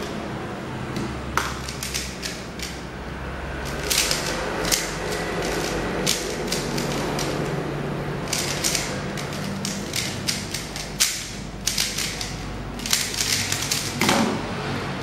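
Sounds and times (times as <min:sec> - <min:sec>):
puzzle cube plastic clicks: 0:01.4 - 0:02.8, 0:03.7 - 0:07.5, 0:08.2 - 0:14.0.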